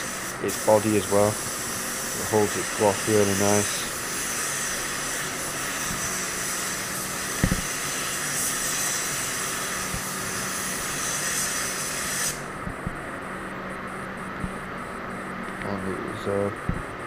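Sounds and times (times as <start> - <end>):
spray gun hissing: 0.0 - 12.5
spray booth air flow rushing: 0.0 - 13.0
brief knock: 7.4 - 7.6.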